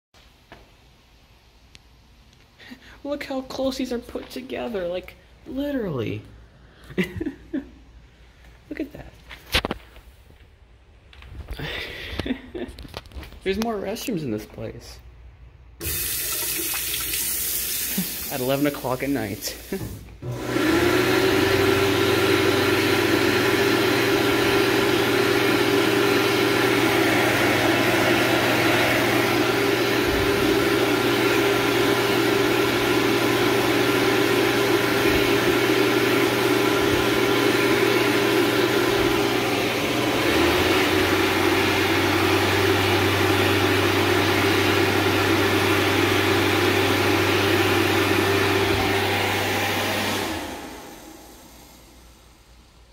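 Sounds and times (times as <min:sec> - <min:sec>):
hand dryer blower running: 0:15.8 - 0:52.2.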